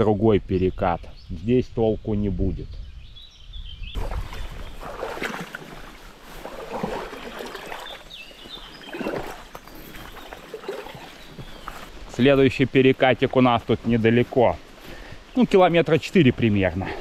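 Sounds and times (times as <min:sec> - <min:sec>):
wading through shallow water: 0:04.0 - 0:12.0.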